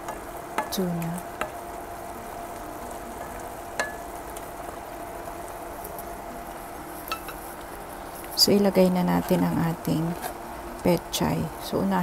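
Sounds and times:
spatula tapping pan: 0.0 - 1.6, 3.1 - 4.4, 7.1 - 7.4
food sizzling in a wok: 0.0 - 12.0
wooden spatula stirring: 5.9 - 10.4.

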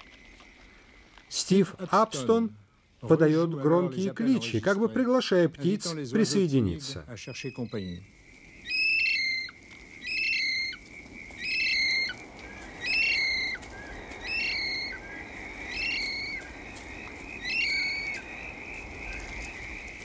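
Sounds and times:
kiwi whistled calls: 7.3 - 8.0, 8.6 - 20.0.

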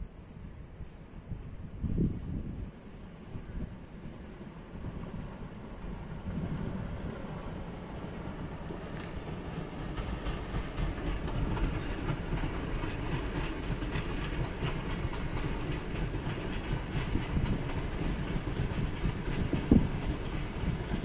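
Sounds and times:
distant train rumbling over rails: 0.0 - 21.0
train bump: 6.3 - 21.0.

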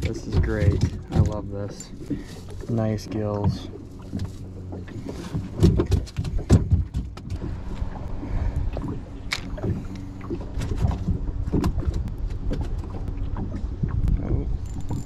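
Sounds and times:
fishing gear knocking plastic hull: 0.0 - 7.6
steady low rumble: 0.0 - 15.0.

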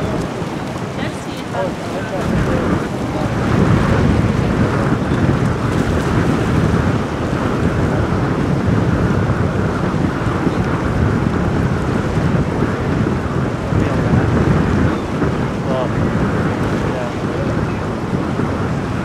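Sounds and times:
wake breaking: 0.0 - 8.2
boat motor churning: 0.0 - 19.0
wind buffeting microphone: 0.0 - 19.0.

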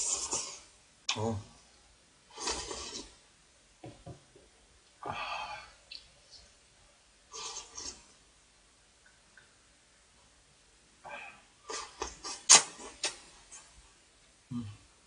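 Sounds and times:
voiced mouth sound: 11.7 - 13.7, 14.5 - 14.9.

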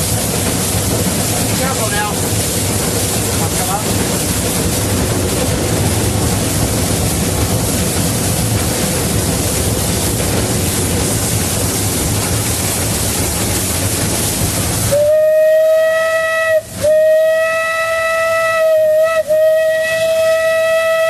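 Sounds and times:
steam locomotive running: 0.0 - 21.0
steam whistle blasts: 14.9 - 21.0.

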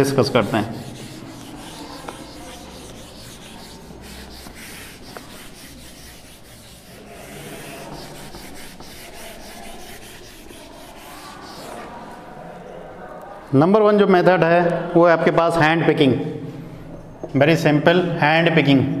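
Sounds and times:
duster scraping whiteboard: 0.0 - 12.4.

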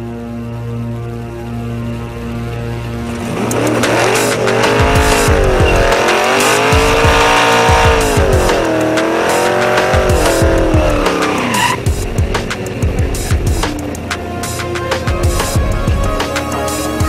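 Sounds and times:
car engine revving: 2.6 - 17.0
music with a beat: 3.3 - 17.0
tyres squealing: 10.3 - 11.9.

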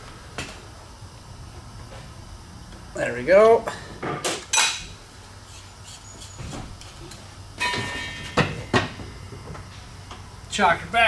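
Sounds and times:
metal tools clanking on workbench: 7.6 - 8.8.

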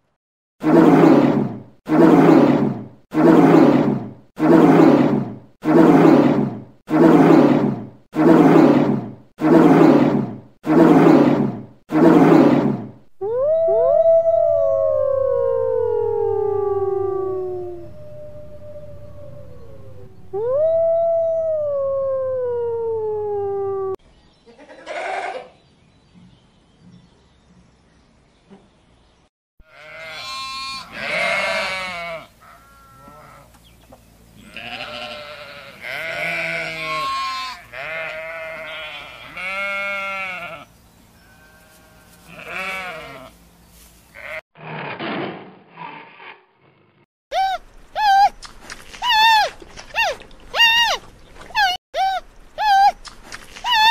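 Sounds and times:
wolf howling: 13.2 - 24.0
sheep bleating: 24.6 - 25.5, 29.7 - 33.5, 34.4 - 43.4
tiger growl: 44.6 - 47.0.

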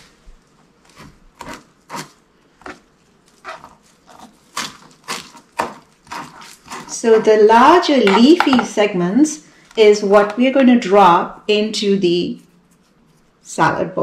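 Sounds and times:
knife chopping on plastic board: 4.1 - 6.9.

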